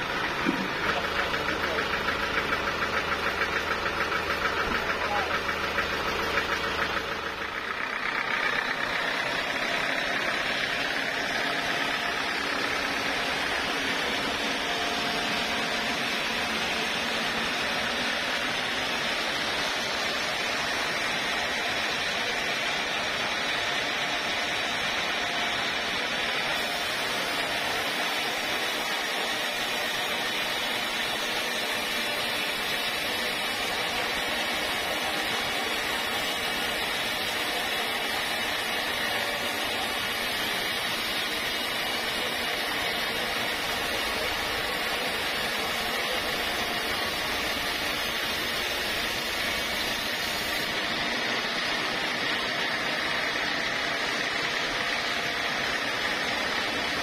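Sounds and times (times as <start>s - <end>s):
band saw cutting log: 0.0s - 57.0s.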